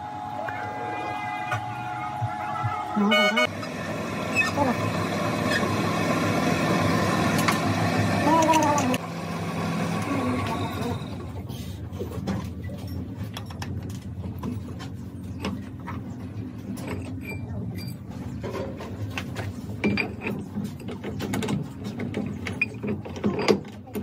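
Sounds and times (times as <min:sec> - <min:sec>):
lathe gearing humming: 0:00.0 - 0:11.4.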